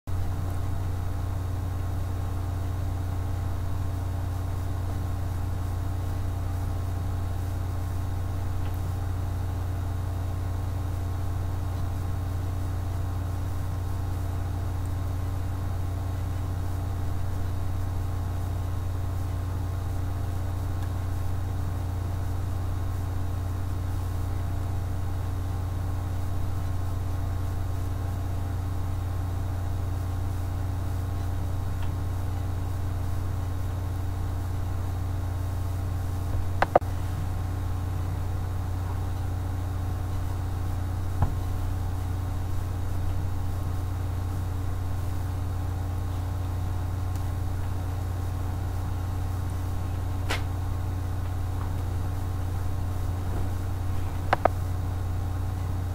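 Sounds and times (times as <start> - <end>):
steady low hum: 0.1 - 55.9.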